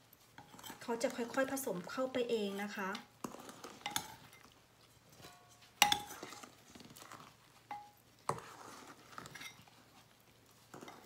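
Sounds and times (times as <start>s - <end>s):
spatula scraping bowl: 0.2s - 11.0s
spatula knocking metal bowl: 5.3s - 6.2s.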